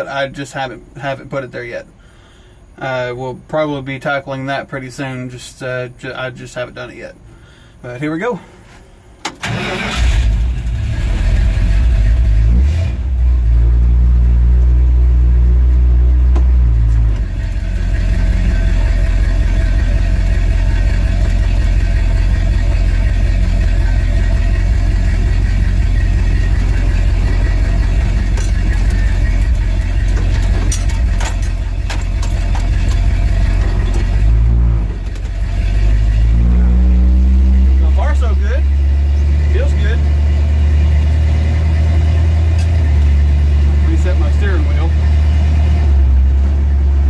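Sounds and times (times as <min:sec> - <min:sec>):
deep engine rumble inside cab: 0:09.4 - 0:47.0.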